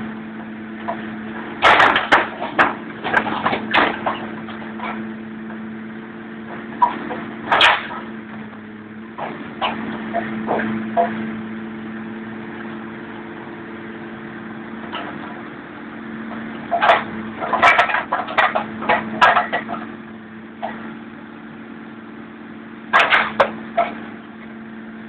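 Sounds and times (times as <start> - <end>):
demolition machine engine hum: 0.0 - 25.0
metal van body cracking and crunching: 0.8 - 5.1, 6.8 - 8.2, 16.7 - 20.0, 22.9 - 24.2.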